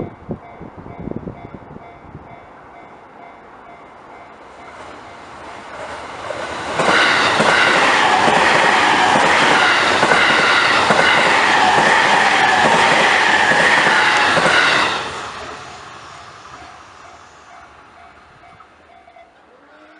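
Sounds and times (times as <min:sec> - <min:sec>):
high whine of train: 0:00.0 - 0:19.9
train wheels clattering over rails: 0:04.6 - 0:18.6.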